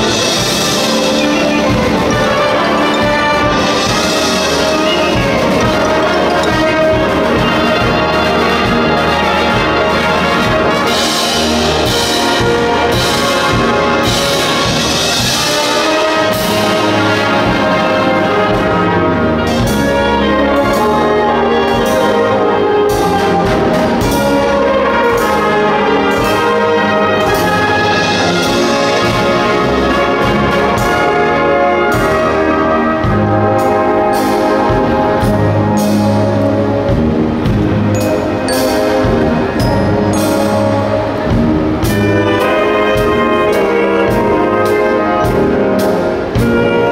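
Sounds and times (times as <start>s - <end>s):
percussion strokes: 0.0s - 46.9s
wind band playing: 0.0s - 46.9s.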